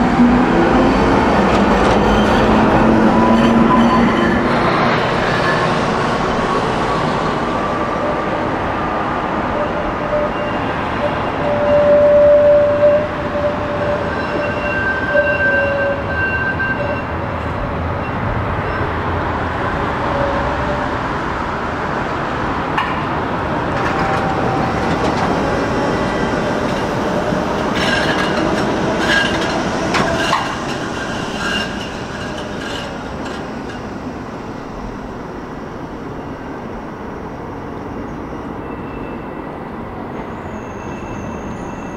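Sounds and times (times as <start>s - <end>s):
tram wheels clicking and clacking: 0.0s - 36.0s
tram rumbling on rails: 0.0s - 41.9s.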